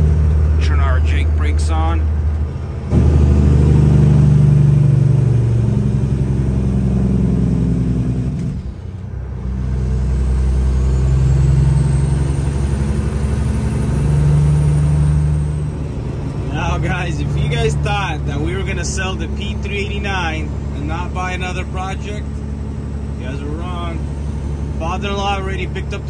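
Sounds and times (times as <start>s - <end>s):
diesel truck engine under load: 0.0s - 26.0s.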